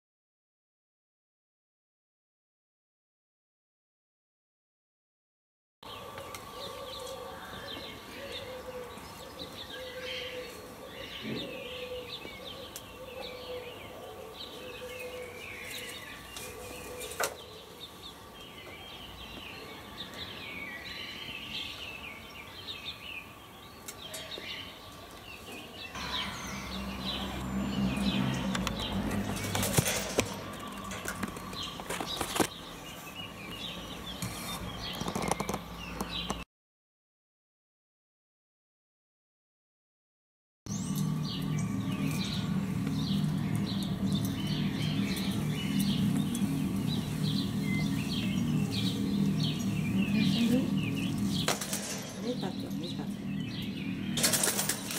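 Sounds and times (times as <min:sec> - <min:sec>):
small birds chirping: 0:05.8 - 0:36.4, 0:40.7 - 0:54.9
low rumble: 0:26.0 - 0:32.2, 0:40.7 - 0:54.9
dove flapping wings in cage: 0:29.2 - 0:32.5, 0:51.3 - 0:52.2, 0:54.2 - 0:54.9.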